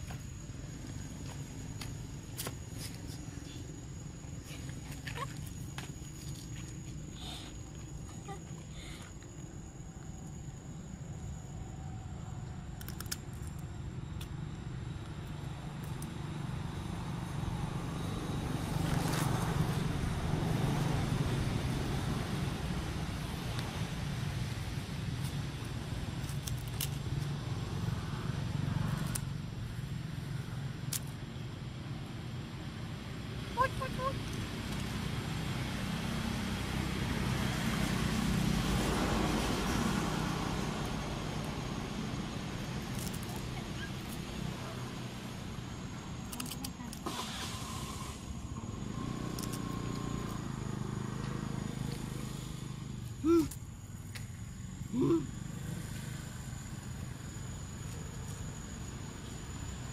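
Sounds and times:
low outdoor rumble: 0:00.0 - 0:59.9
hiss: 0:47.0 - 0:49.7.

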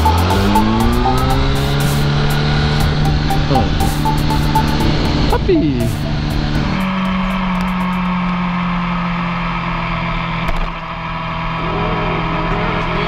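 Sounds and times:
music track: 0:00.0 - 0:08.9
motorcycle engine running: 0:00.0 - 0:13.0.

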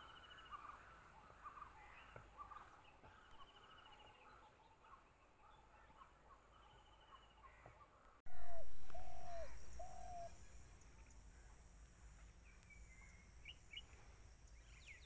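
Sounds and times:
birds chirping and trilling: 0:00.0 - 0:15.0
hooting calls: 0:08.3 - 0:10.6
steady high-pitched whine: 0:08.3 - 0:15.0.

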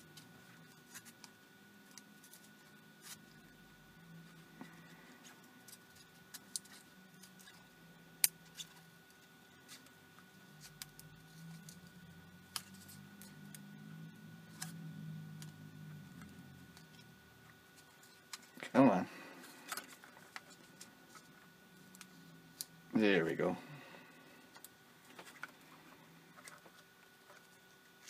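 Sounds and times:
faint steady tone: 0:00.0 - 0:28.0.

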